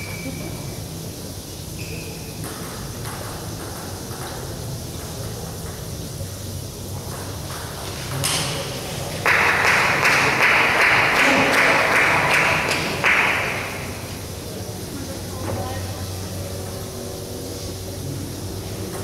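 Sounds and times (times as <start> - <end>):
crowd applause: 8.7 - 14.3.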